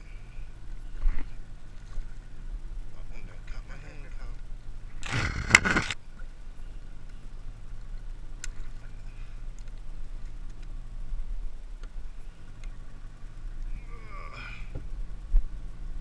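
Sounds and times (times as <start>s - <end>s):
sharp clicks: 5.0s - 6.0s.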